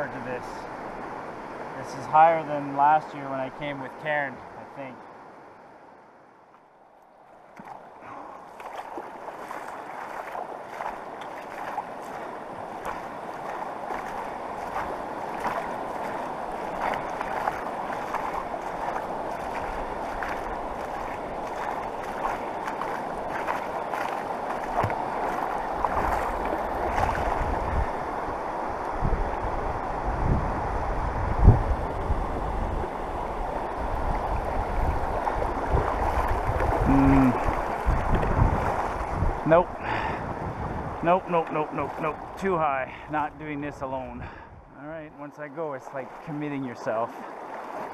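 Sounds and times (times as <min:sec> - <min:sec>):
river water rushing: 0:00.0 - 0:44.0, 0:45.1 - 0:47.9
sharp clicks and splashes: 0:07.5 - 0:27.5, 0:35.2 - 0:39.1
wind rumble on microphone: 0:08.1 - 0:41.1, 0:44.0 - 0:44.8.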